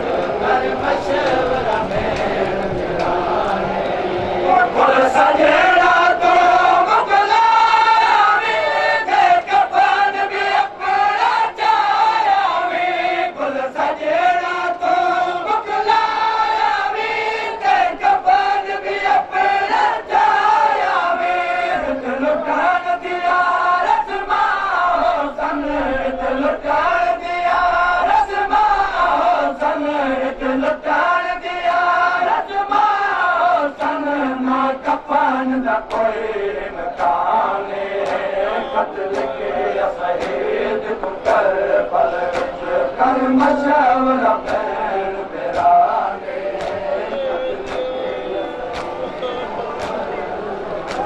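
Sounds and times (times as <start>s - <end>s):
men chanting in unison: 0.0s - 51.0s
chest-beating slaps: 38.0s - 38.3s, 39.1s - 39.4s, 40.2s - 41.5s, 42.2s - 42.6s, 44.4s - 44.7s, 45.5s - 45.8s, 46.6s - 49.2s, 49.8s - 50.1s.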